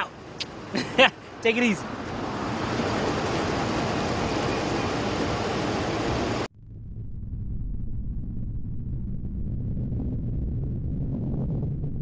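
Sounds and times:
outdoor background noise: 0.0s - 11.8s
engine-like rumble: 1.7s - 12.0s
deep low rumble: 6.5s - 12.0s.

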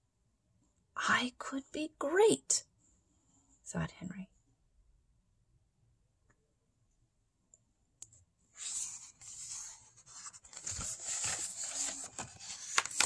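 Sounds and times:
page turning: 8.6s - 13.0s
paper rustling and sliding: 8.6s - 13.0s.

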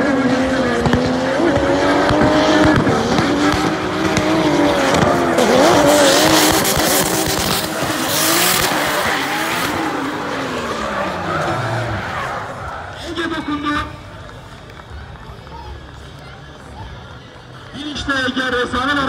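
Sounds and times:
car engines at high revs: 0.0s - 15.0s.

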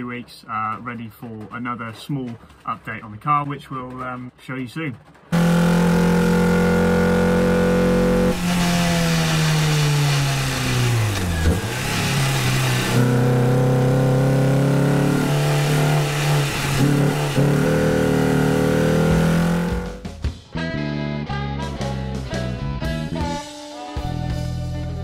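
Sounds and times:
car engine revving: 5.3s - 20.2s.

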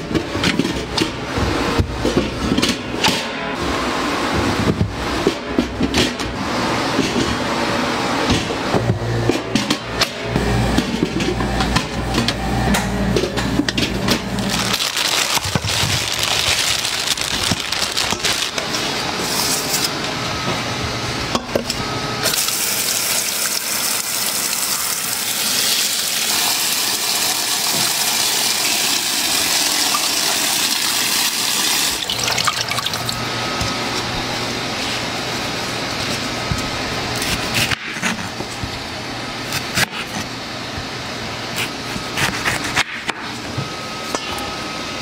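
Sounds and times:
tap water splashing in colander: 26.0s - 33.2s.

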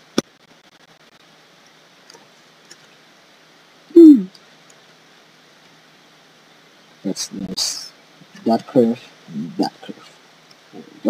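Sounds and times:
low room hiss: 0.0s - 11.0s
man humming: 3.9s - 4.3s, 9.3s - 9.8s.

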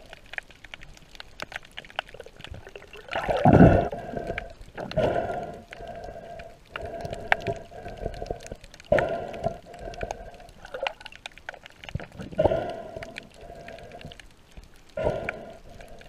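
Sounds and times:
muffled underwater water surges: 0.0s - 16.0s.

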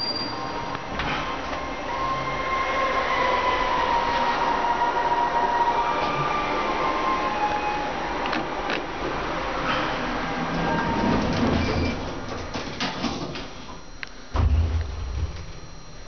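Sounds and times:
elevator running: 0.0s - 16.0s
low hum: 13.8s - 16.0s
heavy low thump: 14.3s - 16.0s.

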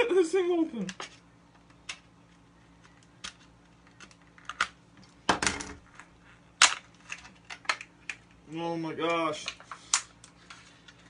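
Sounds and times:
clicks and crackles: 2.8s - 5.1s, 5.9s - 8.4s.

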